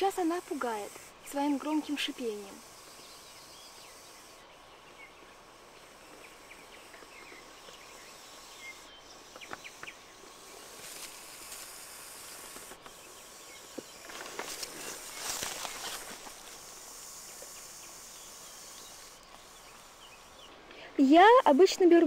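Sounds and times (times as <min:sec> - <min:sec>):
snake hissing: 0:00.0 - 0:22.0
rustling of dry leaves and grass: 0:09.2 - 0:21.4.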